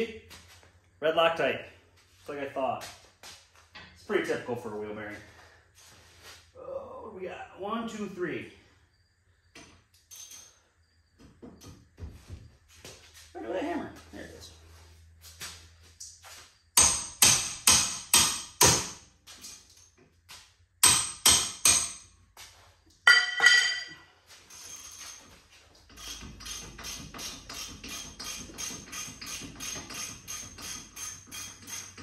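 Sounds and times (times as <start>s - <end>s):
hammer striking metal hub: 16.8s - 19.0s, 20.8s - 22.0s, 23.1s - 24.0s.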